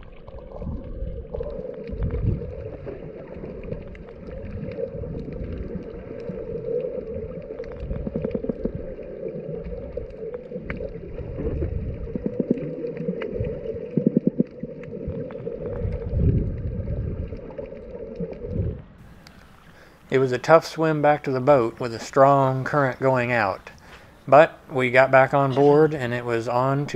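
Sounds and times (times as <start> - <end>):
muffled underwater drone: 0.0 - 19.0
crackling clicks: 0.0 - 20.1
underwater gurgles: 0.0 - 23.5.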